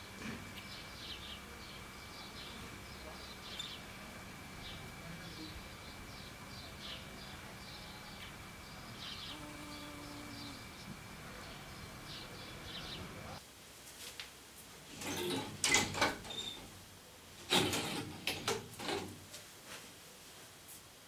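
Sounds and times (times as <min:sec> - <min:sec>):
faint outdoor background: 0:00.0 - 0:21.0
wooden shutters knocking and rattling: 0:15.0 - 0:16.7, 0:17.5 - 0:19.2.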